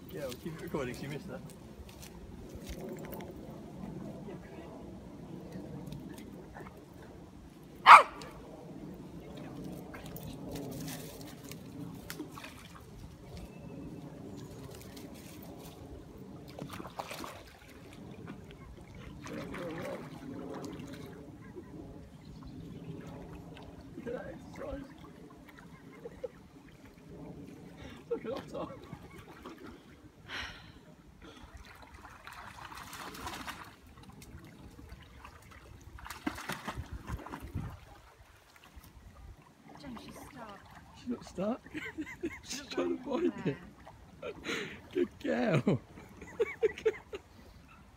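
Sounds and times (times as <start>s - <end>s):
stream flowing and trickling: 0.0s - 47.9s
dog splashing into water: 16.4s - 18.4s, 31.5s - 38.7s.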